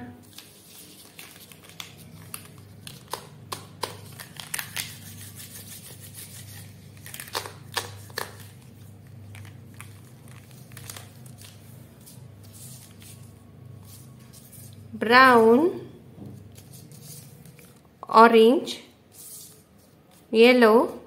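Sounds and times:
pens tapping on paper: 1.6 - 4.2.

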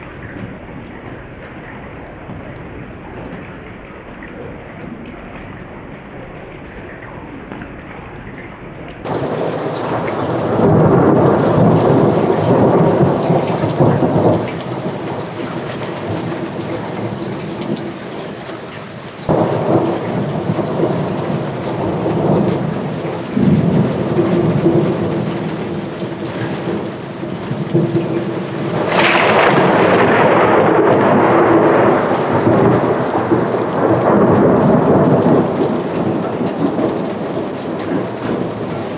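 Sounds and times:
heavy rain: 0.0 - 38.9
thunder rumbling: 9.0 - 38.9.

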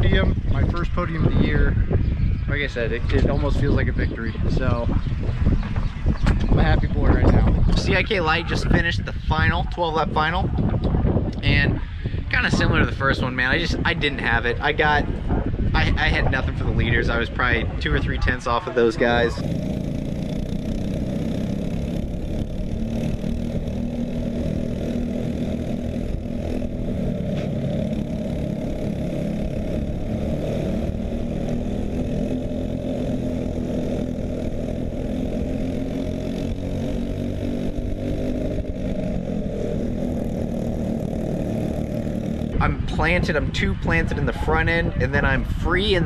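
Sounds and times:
kart engine running hard: 15.1 - 46.0.

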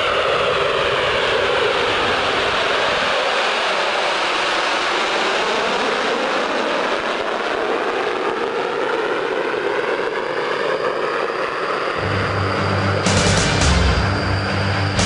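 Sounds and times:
jet aircraft flying past: 0.0 - 15.0
music: 12.0 - 15.0.

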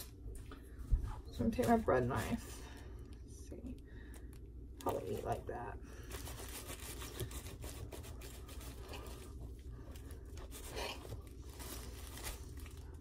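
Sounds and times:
bread knife sawing through roll: 6.2 - 9.2.

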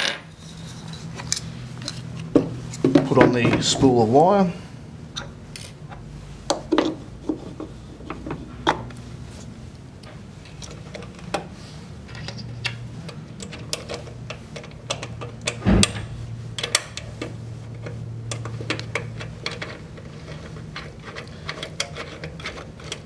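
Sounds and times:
heavy knock: 15.6 - 16.3.

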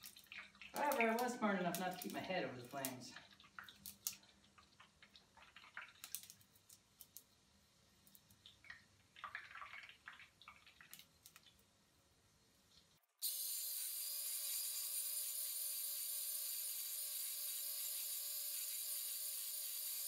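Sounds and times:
grease crackling and popping: 0.0 - 7.3, 8.0 - 11.7.

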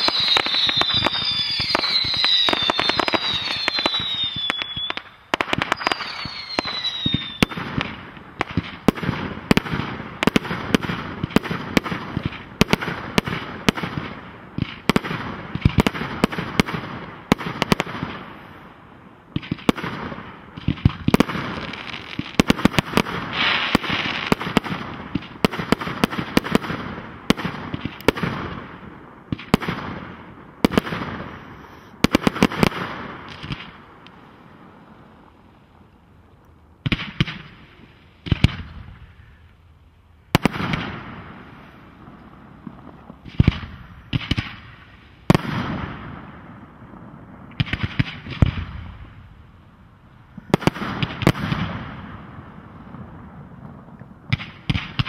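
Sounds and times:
fireworks whistles falling in pitch: 0.0 - 7.9, 21.1 - 24.4
fireworks bangs and pops: 0.0 - 18.5, 19.3 - 34.2, 36.8 - 39.2, 40.3 - 49.3, 50.3 - 55.0.

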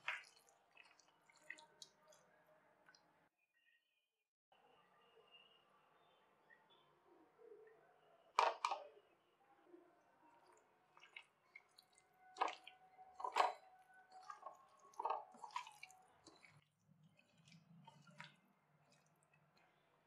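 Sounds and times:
hand squelching wet marinade: 0.0 - 2.3, 10.4 - 19.7.

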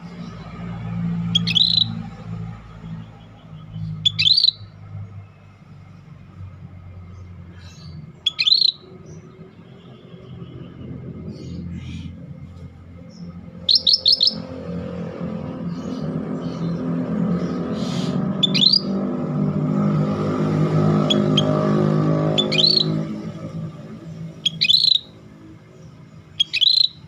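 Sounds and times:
low engine rumble: 0.0 - 27.0
bulbul whistling: 0.2 - 4.8, 7.6 - 9.3, 13.0 - 14.8, 17.8 - 19.0, 20.8 - 25.5, 26.3 - 27.0.

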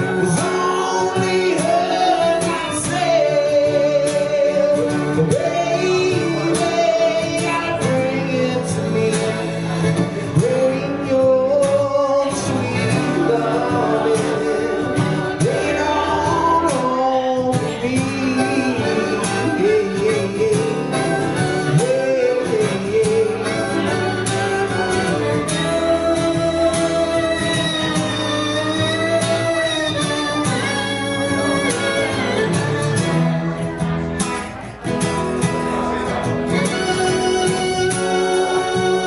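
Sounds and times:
acoustic guitar strumming: 0.0 - 39.0
harmonica solo with bending notes: 20.9 - 34.1, 35.8 - 39.0.

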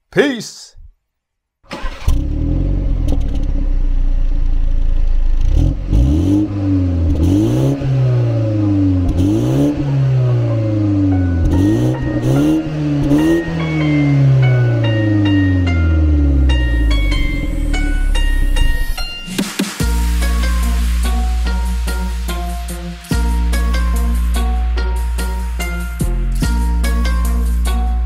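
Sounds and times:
car engine revving: 1.8 - 18.7.

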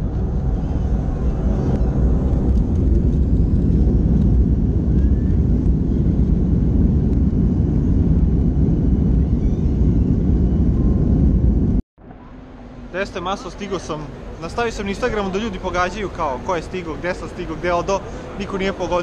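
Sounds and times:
airliner engine rumble in cabin: 0.0 - 11.8.

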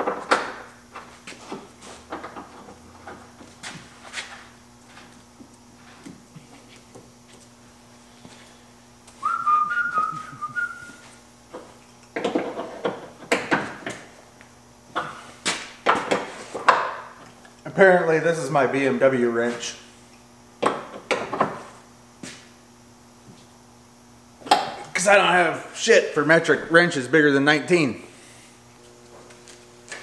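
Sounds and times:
faint steady hum: 0.0 - 30.0
person whistling a tune: 9.2 - 11.0.

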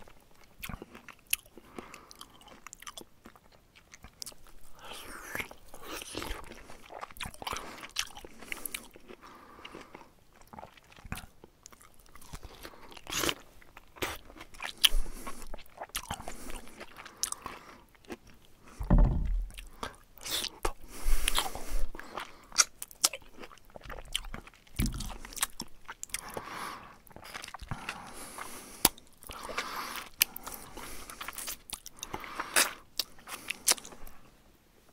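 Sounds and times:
low bumps: 18.8 - 19.6.

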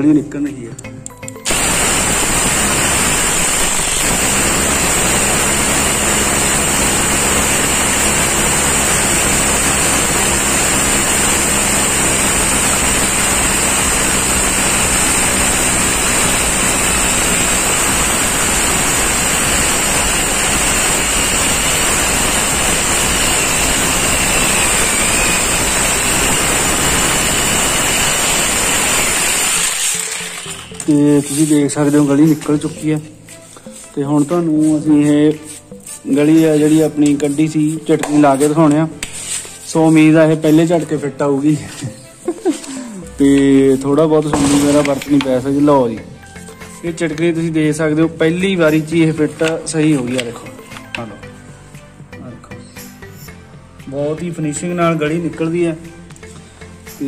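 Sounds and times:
rotary hammer drill running: 1.4 - 32.0.

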